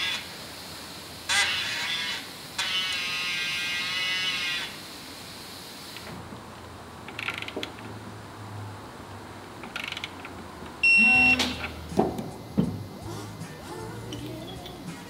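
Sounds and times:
electronic beep: 10.8s - 11.8s.

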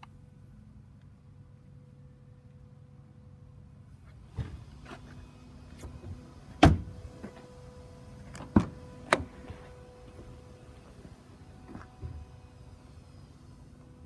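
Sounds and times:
faint steady hum: 0.0s - 14.0s
car door clicks and knocks: 6.6s - 6.9s, 8.3s - 9.3s.

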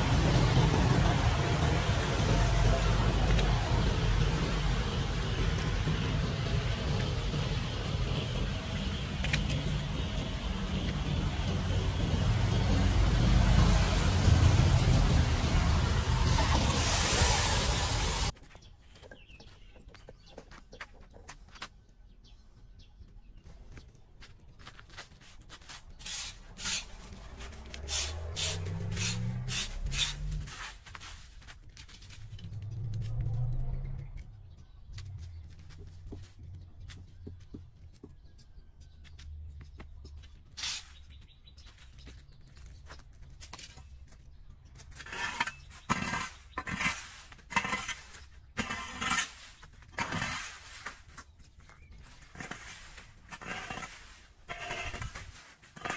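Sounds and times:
low hum: 0.0s - 18.3s
rake scraping on concrete: 24.7s - 33.2s, 40.6s - 41.0s, 44.8s - 55.9s.

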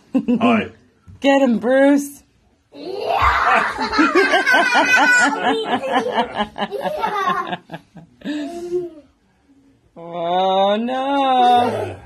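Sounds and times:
hearty laughter: 3.4s - 9.0s.

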